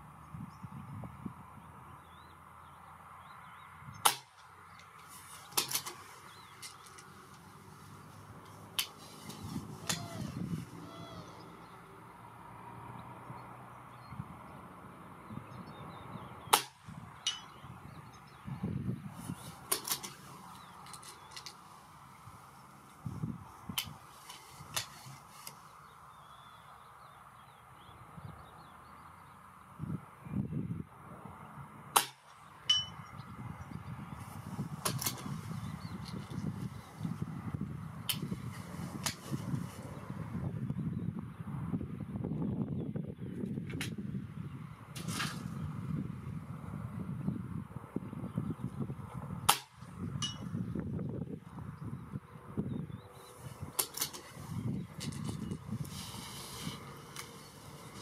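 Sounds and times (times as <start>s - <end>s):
air rifle shot: 4.0s - 4.4s, 16.5s - 16.9s, 32.0s - 32.3s, 49.4s - 49.8s.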